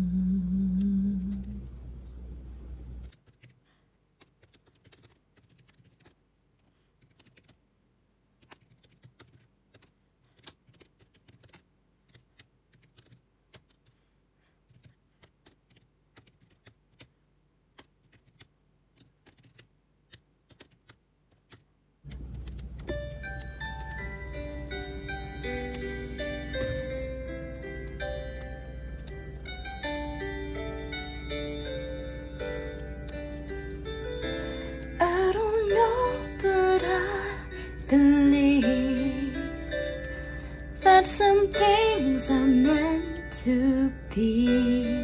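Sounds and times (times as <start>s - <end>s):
typing on a keyboard: 4.2s - 6.2s, 7.0s - 7.6s, 8.4s - 14.0s, 14.7s - 17.1s, 17.8s - 24.1s, 27.5s - 31.8s, 32.7s - 36.5s
piano music: 22.4s - 45.0s.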